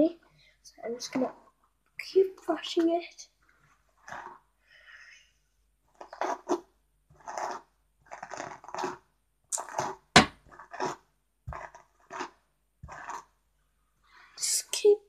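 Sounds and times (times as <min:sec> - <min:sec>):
sharp knock: 0:10.2 - 0:10.4.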